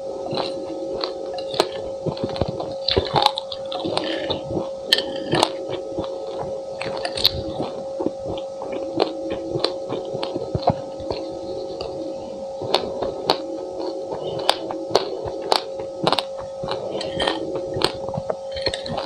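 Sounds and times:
chewing crunches: 0.0 - 19.0
steady hum: 0.0 - 19.0.

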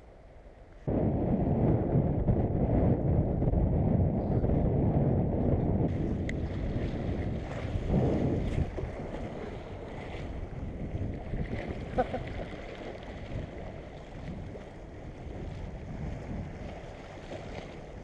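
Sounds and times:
wind buffeting microphone: 0.8 - 18.0
waves washing against rocks: 5.9 - 18.0.

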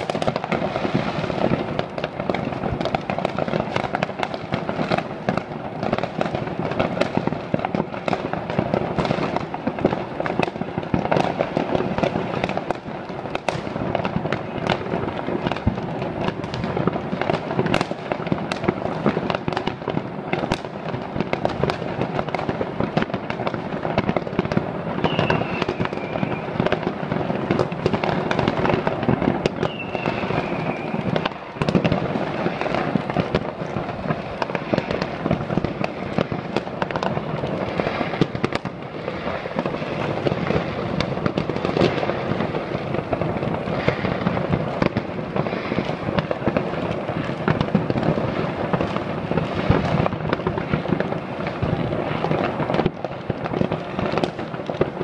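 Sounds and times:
fireworks and firecrackers banging: 0.0 - 55.0
high firework whistles: 24.8 - 42.5, 43.1 - 46.2.

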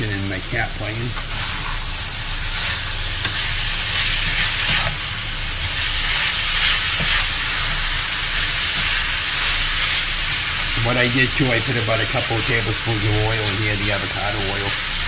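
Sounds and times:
meat sizzling in a frying pan: 0.0 - 15.0
spatula scraping a pan: 1.2 - 10.8.

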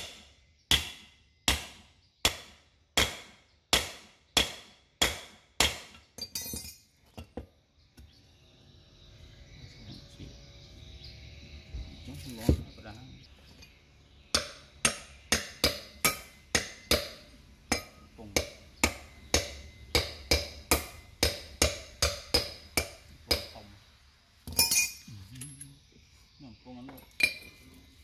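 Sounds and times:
hammer tapping on metal: 14.3 - 23.6.

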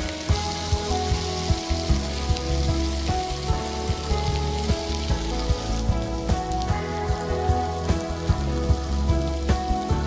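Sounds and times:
background music with steady beat: 0.0 - 10.0
patties sizzling on grill pans: 0.0 - 10.0.

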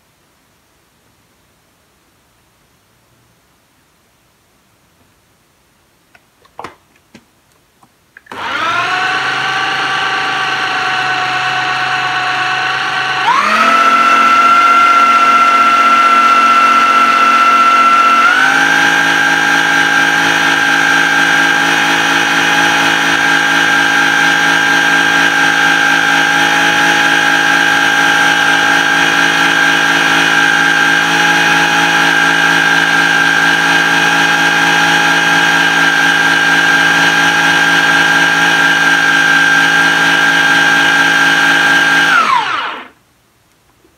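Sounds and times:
blender motor running: 8.2 - 43.0.

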